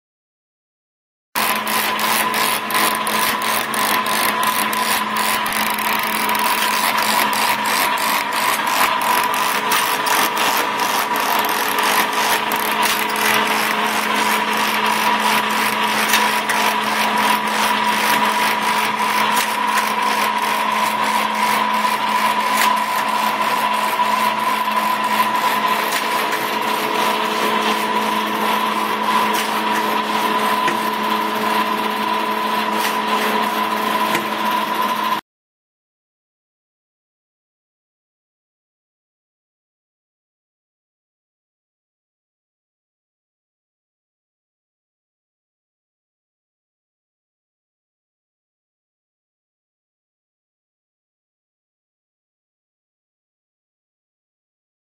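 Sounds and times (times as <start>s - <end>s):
feed mechanism clicking: 1.4s - 35.2s
tape-binding machine humming: 1.4s - 35.2s.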